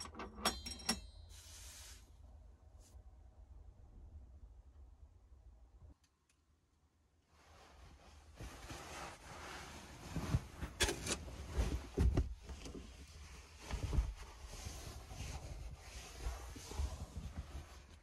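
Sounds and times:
mattress pad rustling: 0:07.5 - 0:18.0.

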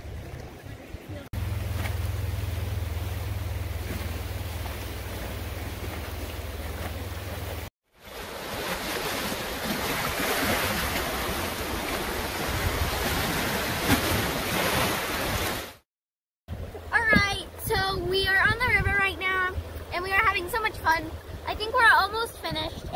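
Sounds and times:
wind buffeting microphone: 0:16.5 - 0:22.9.

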